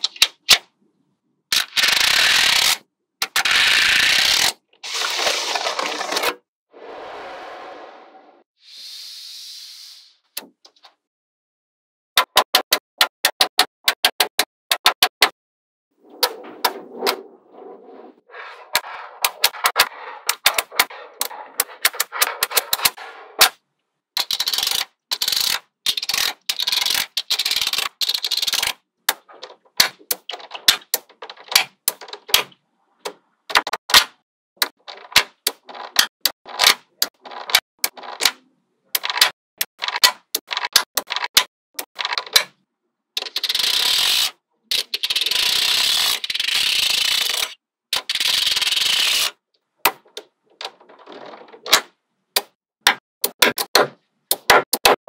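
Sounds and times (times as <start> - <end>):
steady scraping noise: 6.7 - 8.5, 16.0 - 23.4.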